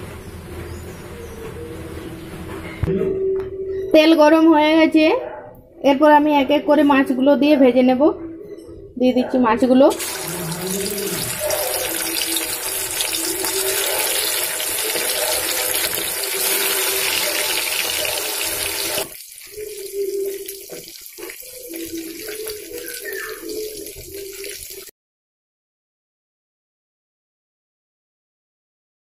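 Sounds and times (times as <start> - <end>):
fish sizzling in oil: 9.9 - 24.9.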